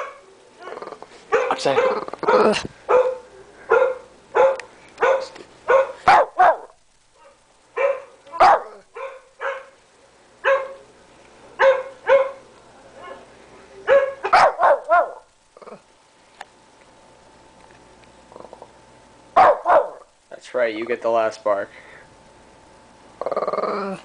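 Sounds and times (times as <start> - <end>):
dog barking: 0.0 - 9.8, 10.4 - 10.8, 11.6 - 12.4, 13.0 - 15.3, 19.4 - 20.1.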